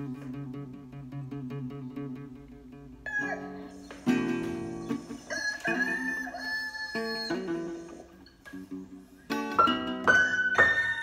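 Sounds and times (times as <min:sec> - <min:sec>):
classical guitar picking: 0:00.0 - 0:11.0
rooster crows: 0:03.1 - 0:03.7, 0:05.1 - 0:07.9.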